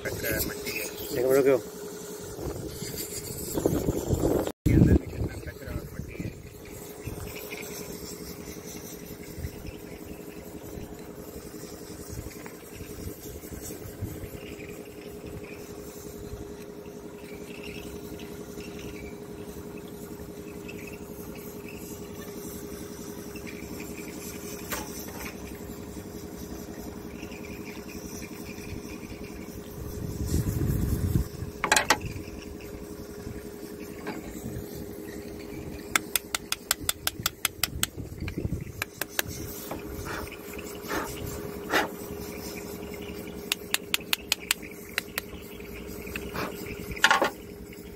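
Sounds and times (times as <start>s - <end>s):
excavator diesel engine idling: 31.6s - 47.9s.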